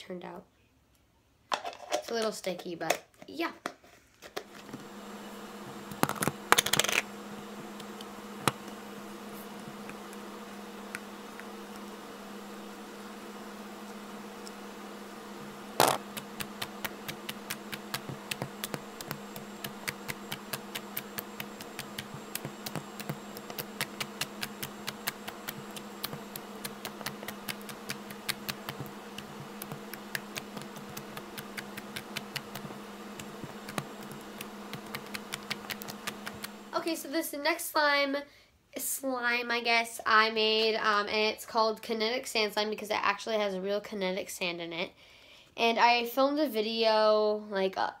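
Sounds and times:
steady low hum: 0:04.5 - 0:37.4.

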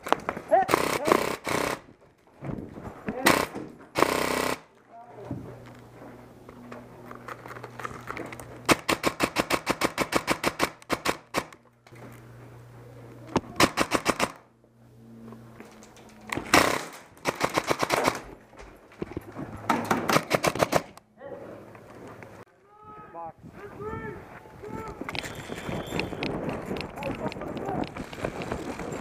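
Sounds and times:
airsoft rifle bursts: 0:00.6 - 0:01.9.

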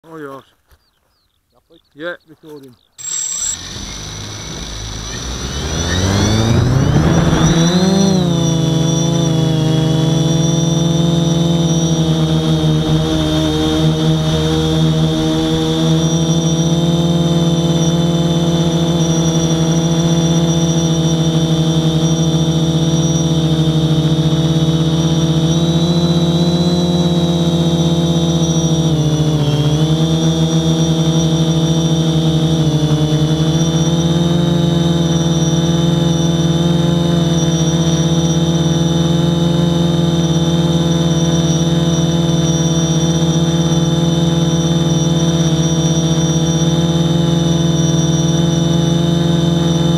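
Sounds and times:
quadcopter motors whining: 0:02.4 - 0:49.9.

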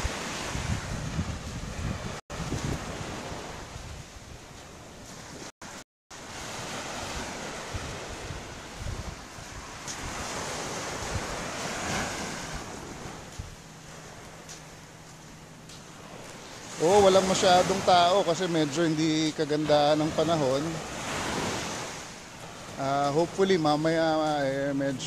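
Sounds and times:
wind buffeting microphone: 0:00.0 - 0:05.5, 0:06.4 - 0:14.3
surf hissing on beach: 0:00.0 - 0:25.0.

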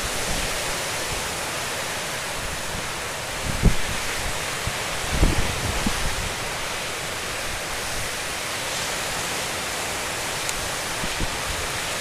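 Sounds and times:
gale wind: 0:00.0 - 0:12.0
storm surf: 0:00.0 - 0:12.0
wind thumping microphone: 0:05.1 - 0:06.4.

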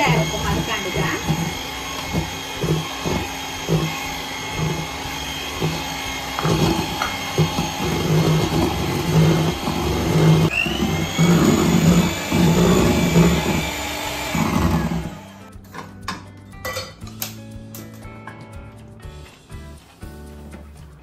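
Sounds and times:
electric hand mixer whine: 0:00.0 - 0:15.5
beaters whisking in steel bowl: 0:00.0 - 0:15.9.

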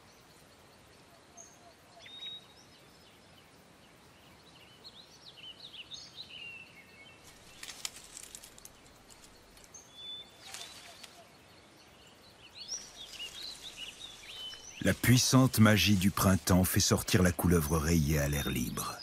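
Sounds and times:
small birds chirping: 0:00.0 - 0:19.0
dry leaves crackling: 0:07.2 - 0:11.3, 0:12.6 - 0:17.6.

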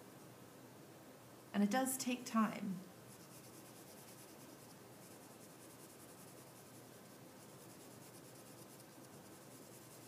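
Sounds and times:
pencil scratching on paper: 0:03.1 - 0:10.0.

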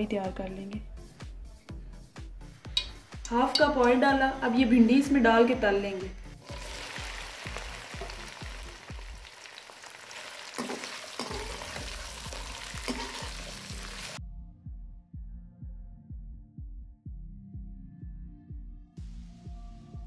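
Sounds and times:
background music with steady beat: 0:00.0 - 0:09.3, 0:11.2 - 0:20.0
okra sizzling in hot oil: 0:06.4 - 0:14.2
spatula stirring in metal pan: 0:10.1 - 0:14.1.

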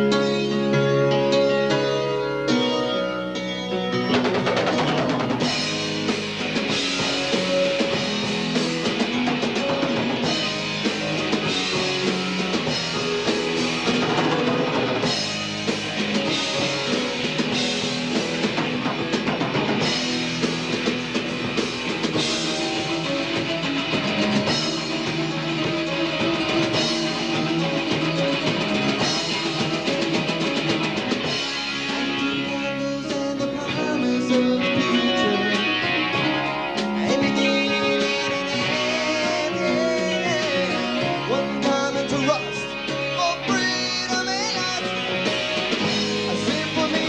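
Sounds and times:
rock band playing live: 0:00.0 - 0:47.0.

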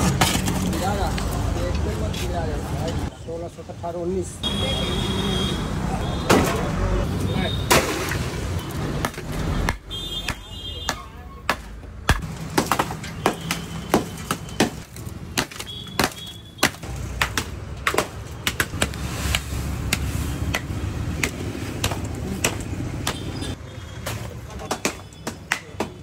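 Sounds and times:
wooden bats pounding ice: 0:09.0 - 0:26.0.

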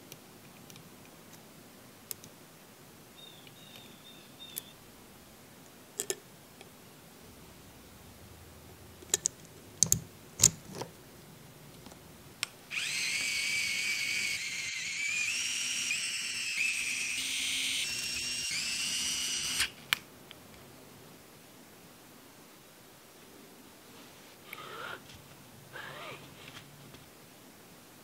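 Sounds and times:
electric screwdriver whirring: 0:12.7 - 0:19.8.

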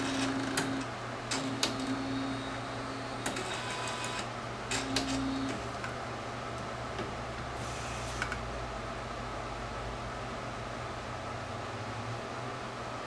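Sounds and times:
printer motor hum: 0:00.0 - 0:08.6
steady background hum: 0:00.0 - 0:13.0.

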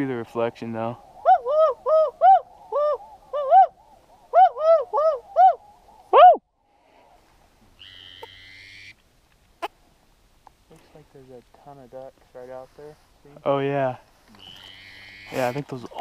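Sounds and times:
soft breathy hiss: 0:05.6 - 0:07.8, 0:09.0 - 0:14.4.

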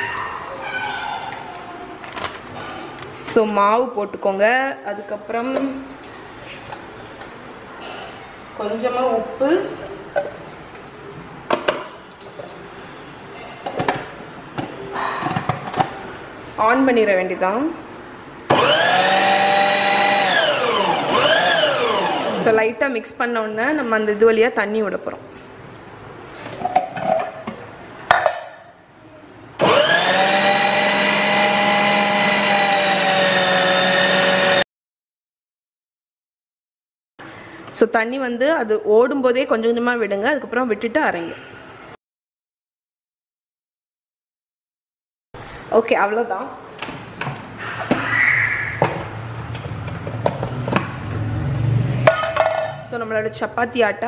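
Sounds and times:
food processor motor running: 0:18.5 - 0:22.5, 0:29.6 - 0:34.6.

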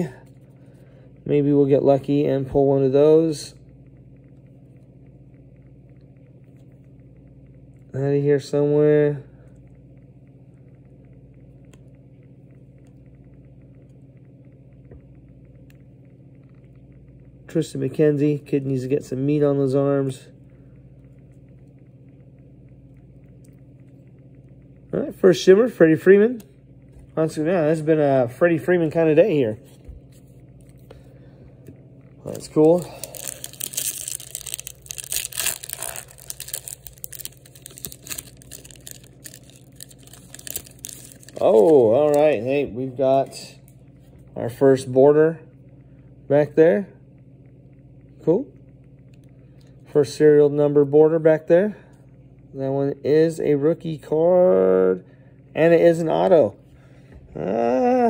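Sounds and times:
steady low hum: 0:00.0 - 0:58.0
cards scraping and crinkling: 0:32.4 - 0:41.8.

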